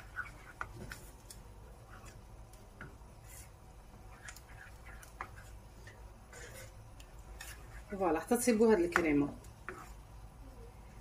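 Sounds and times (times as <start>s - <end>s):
wooden spoon scraping a pan: 0.0s - 2.2s, 2.8s - 10.1s.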